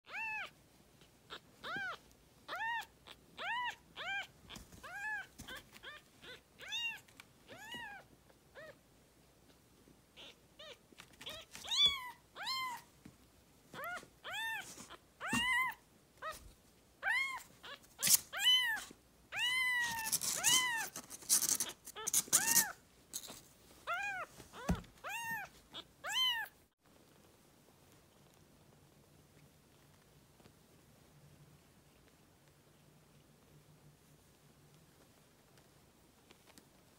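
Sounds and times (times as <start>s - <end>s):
newborn kitten mewing: 0.1s - 0.6s, 1.3s - 8.8s.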